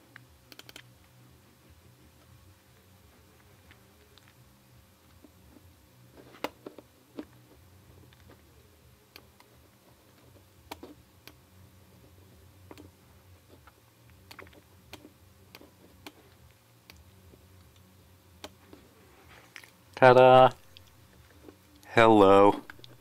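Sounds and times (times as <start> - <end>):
computer mouse clicks: 0.5 - 0.9.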